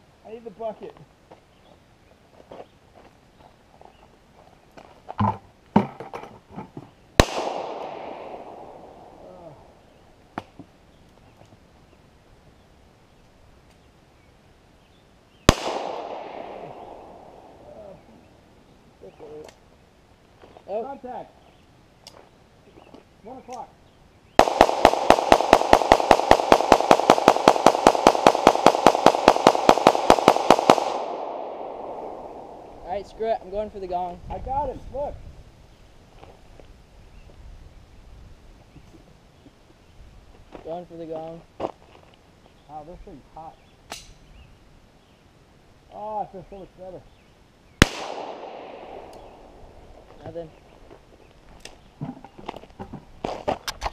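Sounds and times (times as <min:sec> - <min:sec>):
handgun shot echoing: 0:07.2 - 0:09.0, 0:15.5 - 0:17.3, 0:24.4 - 0:32.8, 0:47.8 - 0:49.6.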